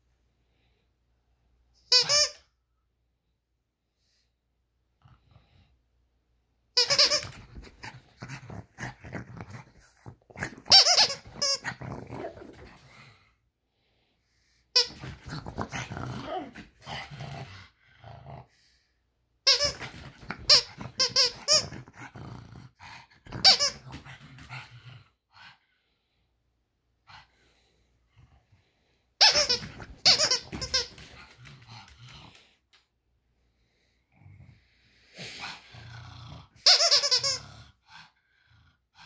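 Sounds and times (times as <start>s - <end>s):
squeaky toy squeaking: 1.8s - 2.5s, 6.8s - 7.8s, 10.6s - 11.8s, 14.8s - 15.2s, 19.4s - 21.8s, 23.4s - 23.8s, 29.2s - 31.1s, 36.6s - 37.5s
dog growling: 7.6s - 10.7s, 11.4s - 13.3s, 14.9s - 18.7s, 19.8s - 25.6s, 35.2s - 36.6s.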